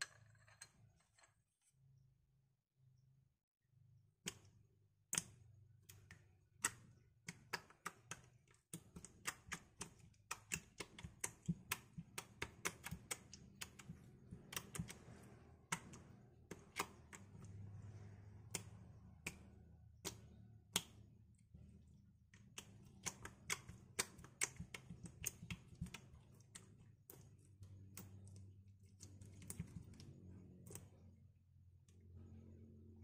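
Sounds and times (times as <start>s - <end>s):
slime clicking under fingertips: 22.4s - 28.4s.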